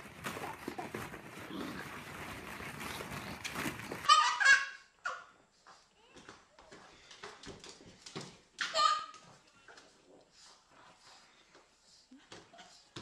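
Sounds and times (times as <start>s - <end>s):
plastic balls rustling and clattering: 0.0s - 4.2s.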